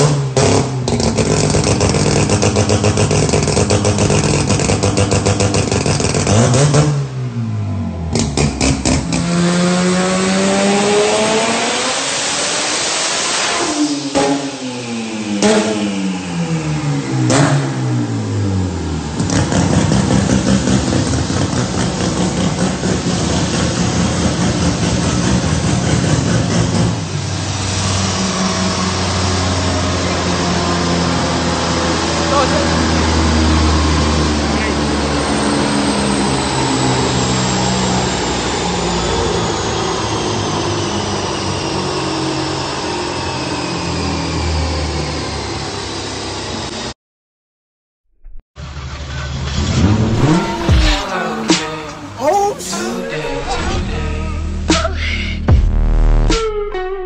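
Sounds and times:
high engine whine: 0:48.7 - 0:52.2.

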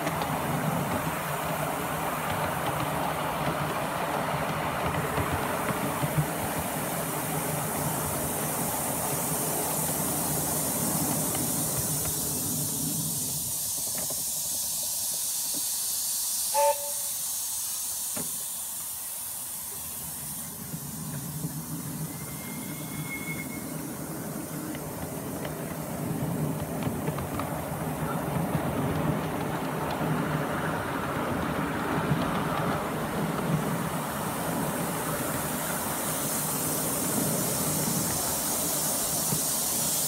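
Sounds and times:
steam hissing: 0:00.0 - 0:40.0
train rumbling on rails: 0:00.0 - 0:40.0
steam whistle toot: 0:16.5 - 0:17.3, 0:22.0 - 0:24.0.

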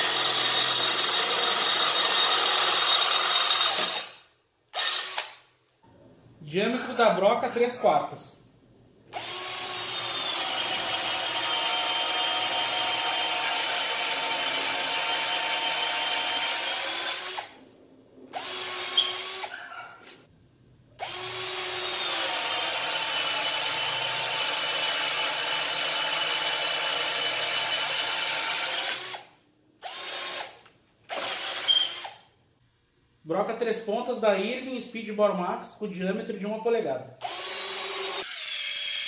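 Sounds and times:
cordless drill boring into wood: 0:00.0 - 0:05.4, 0:09.2 - 0:17.6, 0:18.4 - 0:19.6, 0:21.0 - 0:32.2, 0:37.2 - 0:39.0.

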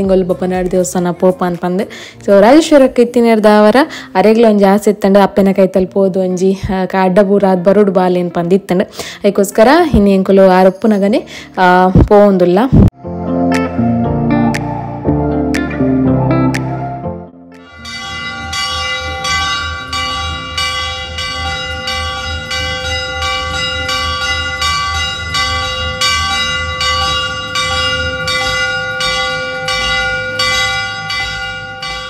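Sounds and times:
large metal bell clanging: 0:17.6 - 0:32.0.

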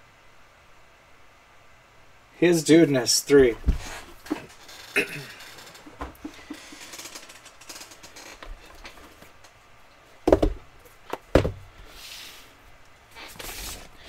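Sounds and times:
cardboard boxes knocking on table: 0:10.3 - 0:10.6, 0:11.2 - 0:11.6.

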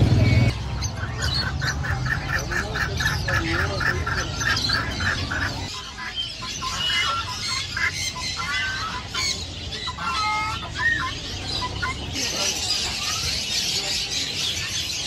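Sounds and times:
birds chirping and whistling: 0:00.0 - 0:15.0
birds clucking: 0:00.0 - 0:15.0.

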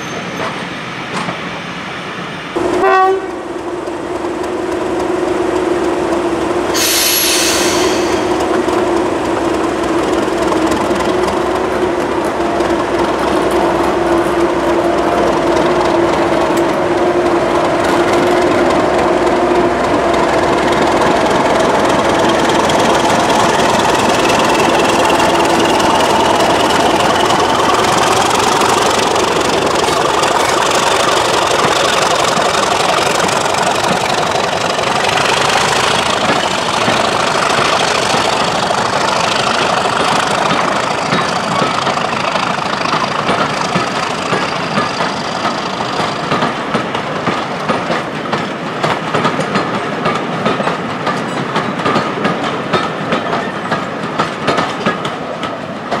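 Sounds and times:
diesel locomotive engine whining: 0:00.0 - 0:56.0
train wheels rolling on rails: 0:00.0 - 0:56.0.

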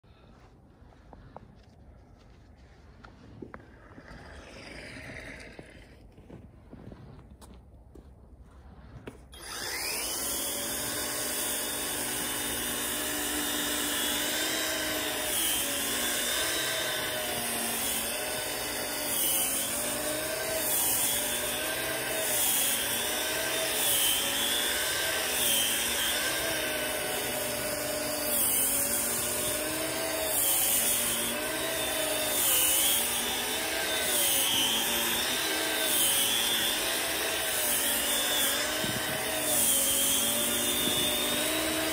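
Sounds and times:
motor whine: 0:09.3 - 0:15.1.

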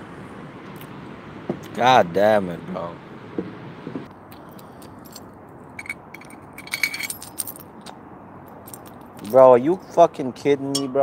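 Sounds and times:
steady background hiss: 0:00.0 - 0:11.0
metallic clinking and jangling: 0:04.9 - 0:07.9, 0:08.5 - 0:09.4.

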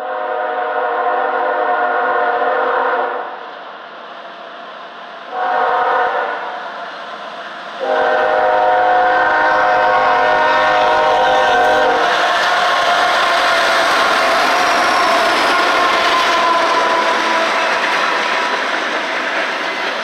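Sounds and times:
locomotive air horn blasts: 0:00.0 - 0:03.2, 0:05.3 - 0:06.5, 0:07.8 - 0:12.1.

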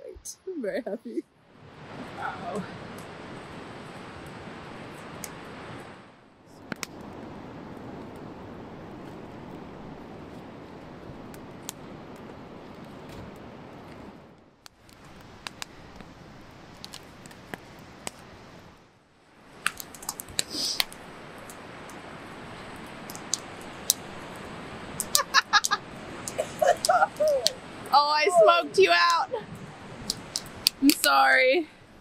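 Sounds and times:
wood fire crackling: 0:01.4 - 0:32.0.

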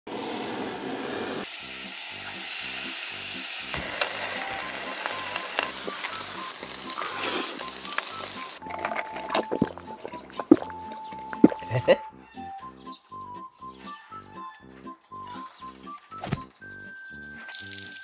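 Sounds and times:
meat sizzling on a grill: 0:01.4 - 0:08.6.

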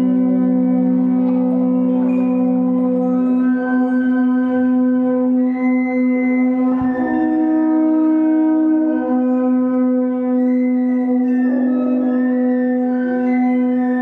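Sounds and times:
low drone note: 0:06.7 - 0:12.8.

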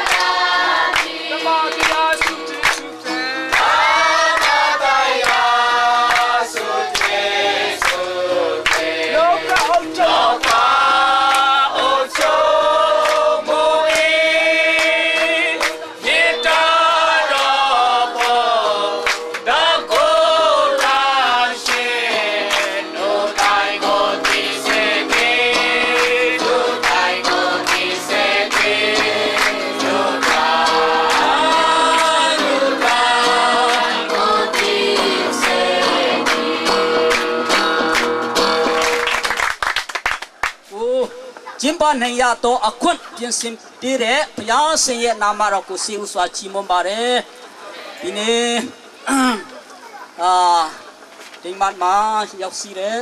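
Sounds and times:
hand claps: 0:00.0 - 0:12.4, 0:13.0 - 0:20.1, 0:20.7 - 0:40.7
group singing a hymn: 0:00.0 - 0:38.6.

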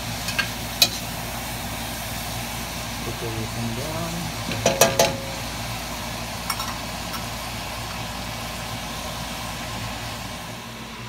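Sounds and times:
kitchen hum: 0:00.0 - 0:11.0
metal utensils clinking: 0:04.5 - 0:05.5, 0:06.5 - 0:07.3.

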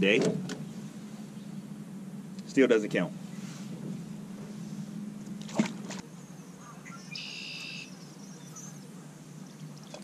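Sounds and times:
fish splashing into water: 0:05.4 - 0:06.0.

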